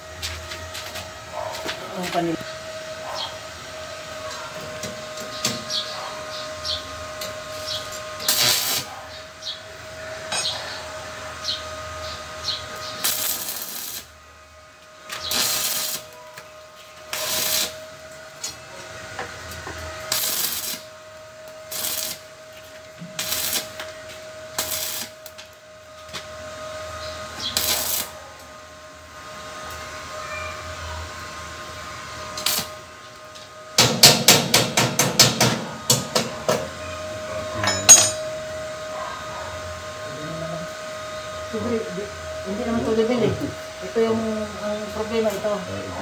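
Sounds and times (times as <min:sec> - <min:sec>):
steady welder hum: 0:00.0 - 0:46.0
crackling welding arc: 0:06.6 - 0:09.6, 0:11.5 - 0:14.2, 0:14.8 - 0:18.6, 0:19.4 - 0:26.2, 0:27.3 - 0:28.2, 0:32.3 - 0:36.1.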